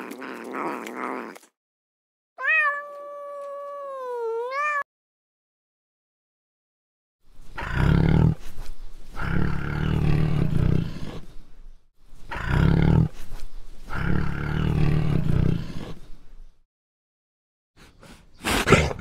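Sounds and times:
tiger roaring: 7.6 - 8.5, 9.2 - 11.3, 12.3 - 13.2, 13.9 - 16.0.

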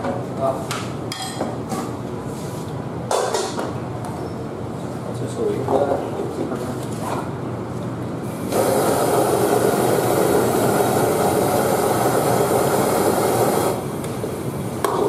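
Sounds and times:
blowtorch flame hissing: 8.2 - 15.0.

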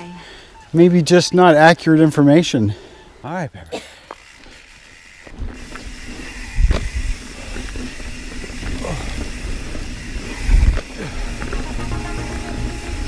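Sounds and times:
bike tyres rattling over dirt trail: 3.9 - 13.0
wind rushing on microphone: 6.5 - 7.2, 10.4 - 10.8.

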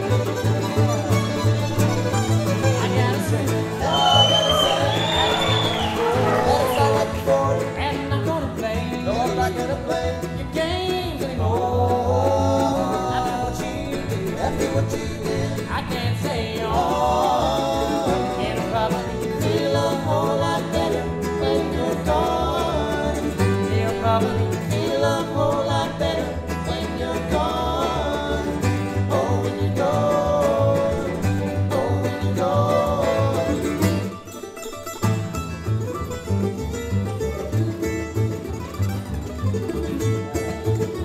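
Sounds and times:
bluegrass string band playing: 0.0 - 41.0
upright bass plucking: 0.0 - 41.0.

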